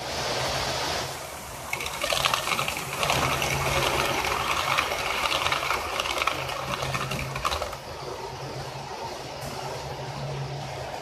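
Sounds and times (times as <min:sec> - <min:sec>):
model train wheels clattering: 0:01.7 - 0:08.0.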